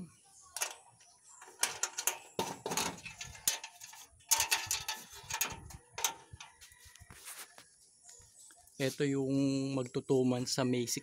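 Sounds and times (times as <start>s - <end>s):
metal hutch door clanking open: 1.5s - 3.7s.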